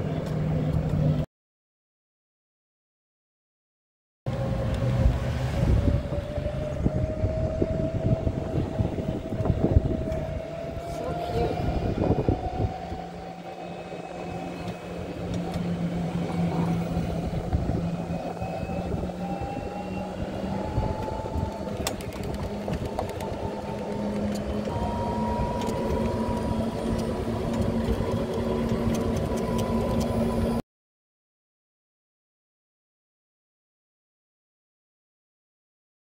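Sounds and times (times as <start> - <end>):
tyre and wind noise: 4.3 - 13.2, 14.6 - 30.6
golf cart motor whine: 4.3 - 30.6.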